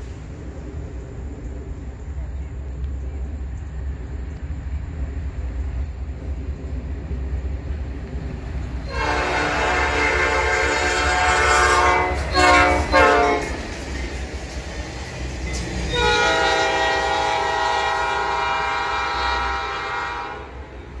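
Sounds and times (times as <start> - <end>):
train wheels rumbling on rails: 0.0 - 21.0
locomotive air horn blasts: 8.9 - 13.6, 15.8 - 20.7.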